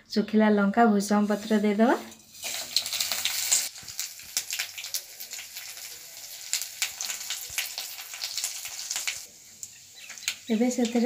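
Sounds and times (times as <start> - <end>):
spices sizzling in hot oil: 1.1 - 11.0
oil popping: 2.2 - 11.0.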